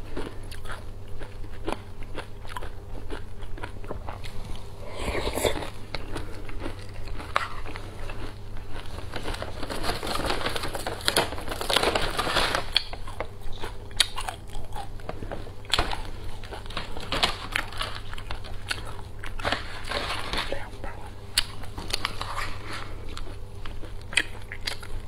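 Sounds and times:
crunching granola: 0.0s - 20.7s, 21.3s - 25.0s
plastic bag crinkling: 6.2s - 13.2s, 15.7s - 20.7s.

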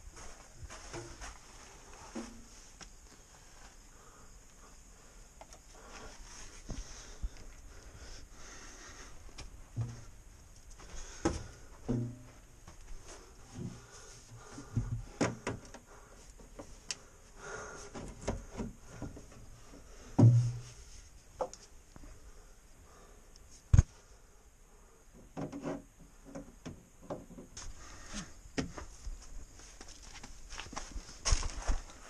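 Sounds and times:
knocks and bumps: 9.4s - 10.2s, 10.9s - 12.8s, 20.2s - 20.8s
heavy thump: 20.2s - 20.7s.

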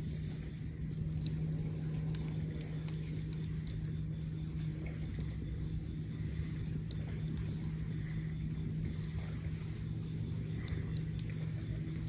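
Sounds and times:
campfire crackling and popping: 0.0s - 12.0s
steady low hum: 0.0s - 12.0s.

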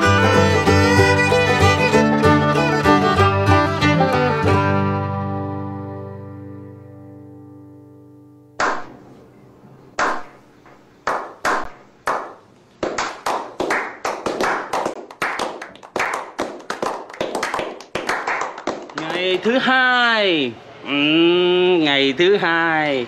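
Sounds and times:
plucked banjo chord: 0.0s - 8.5s
hand claps into applause: 11.1s - 19.5s.

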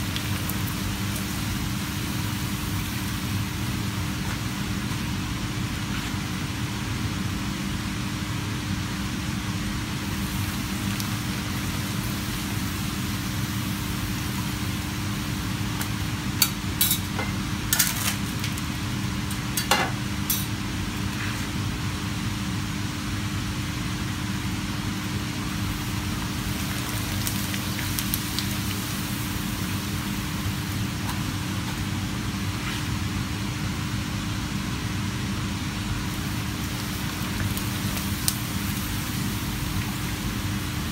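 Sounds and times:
hot oil sizzling in a frying pan: 0.0s - 40.9s
metal utensils clinking on pan: 19.6s - 20.5s.

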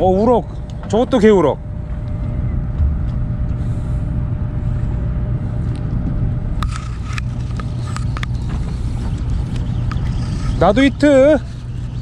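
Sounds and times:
boat engine rumbling: 0.0s - 12.0s.

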